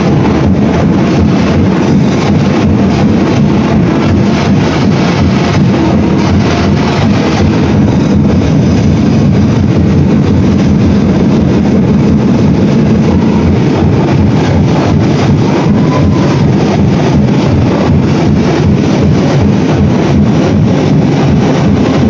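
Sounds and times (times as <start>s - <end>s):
loud dance music with pounding drums: 0.0s - 22.0s.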